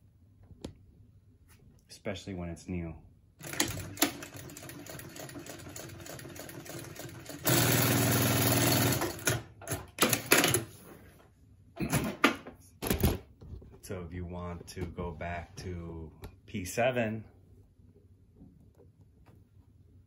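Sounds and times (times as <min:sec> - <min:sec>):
sewing machine stitching: 0:03.4 - 0:10.7.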